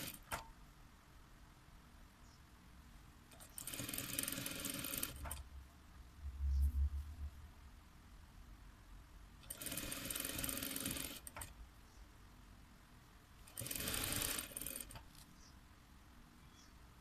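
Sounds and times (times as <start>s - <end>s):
electric sewing machine running: 3.6s - 5.3s, 9.5s - 11.3s, 13.5s - 15.0s.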